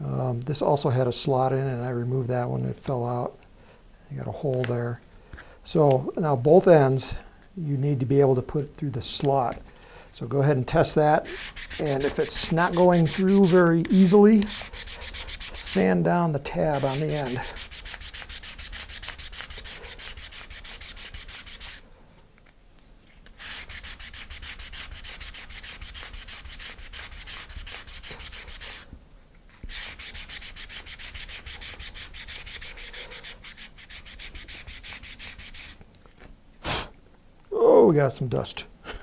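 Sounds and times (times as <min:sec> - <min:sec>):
sandpaper scraping wood: 0:11.2 - 0:21.8, 0:23.4 - 0:28.9, 0:29.6 - 0:35.8.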